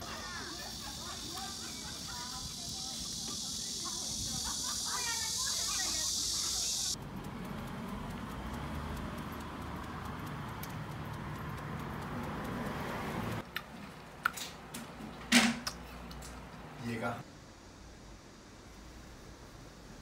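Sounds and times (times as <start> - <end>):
street traffic hum: 0.0 - 20.0
sharp clicks: 2.0 - 14.9.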